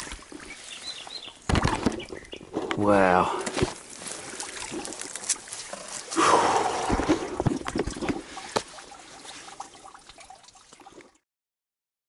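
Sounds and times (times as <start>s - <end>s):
water splashing and trickling: 0.0s - 11.2s
handling knocks and rustles: 1.4s - 6.2s, 6.8s - 9.6s.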